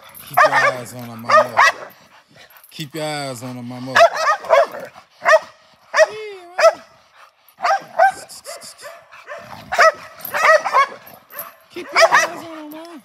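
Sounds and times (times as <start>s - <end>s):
dog barking: 0.3s - 2.0s, 4.0s - 6.9s, 7.6s - 12.5s.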